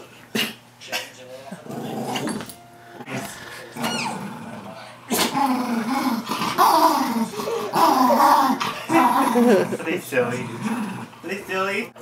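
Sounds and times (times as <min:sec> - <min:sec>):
dog growling in play: 0:01.6 - 0:11.2
falling squeak: 0:03.8 - 0:04.2.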